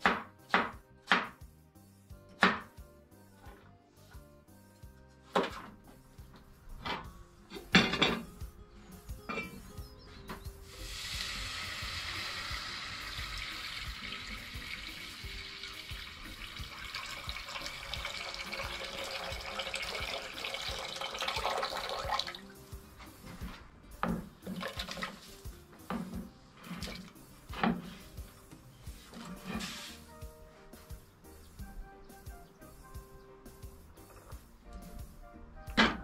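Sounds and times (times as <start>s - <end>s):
water pouring into a pot: 10.7s - 22.5s, 24.5s - 25.3s.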